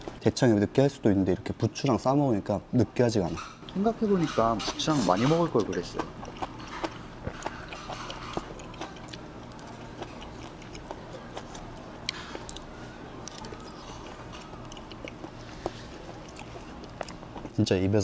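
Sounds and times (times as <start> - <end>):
person chewing: 3.7 - 17.6.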